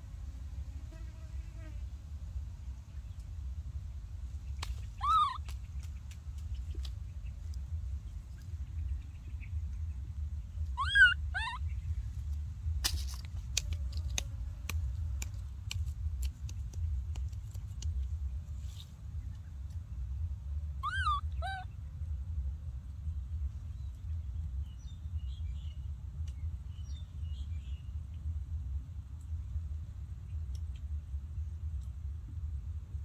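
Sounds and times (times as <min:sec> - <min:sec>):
low rumble: 0:01.9 - 0:33.0
dry twigs snapping and crackling: 0:04.5 - 0:07.6, 0:12.8 - 0:18.1
baby monkey coo calls: 0:04.9 - 0:05.6, 0:10.6 - 0:11.8, 0:20.8 - 0:21.8.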